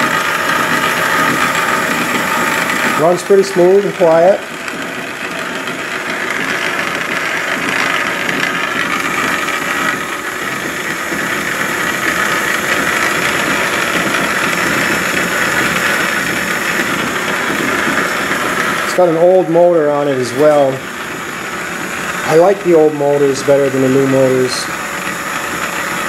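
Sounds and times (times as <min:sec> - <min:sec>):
lathe running with steady whir: 0:00.0 - 0:26.0.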